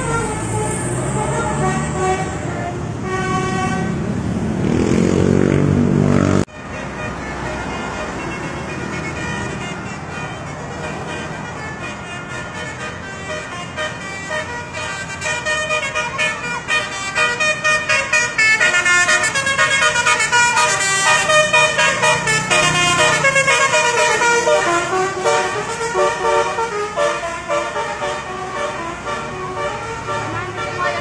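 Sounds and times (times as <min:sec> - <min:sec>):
multi-tone musical vehicle horn: 0:00.0 - 0:04.1, 0:06.4 - 0:31.0
traffic noise: 0:00.0 - 0:31.0.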